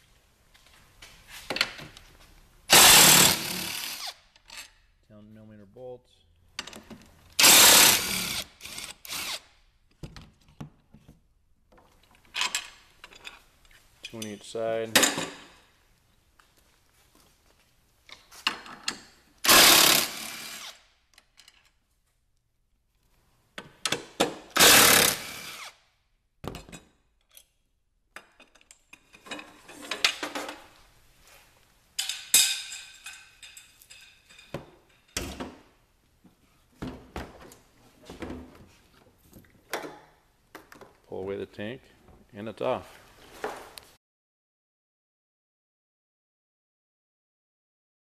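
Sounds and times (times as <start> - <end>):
metallic clinks and rattles: 32.0 - 35.2.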